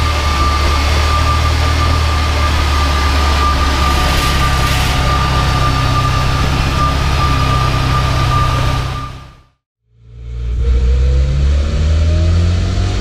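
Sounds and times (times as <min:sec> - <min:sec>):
engine idling low rumble: 0:00.0 - 0:12.2
high-pitched whine: 0:00.0 - 0:13.0.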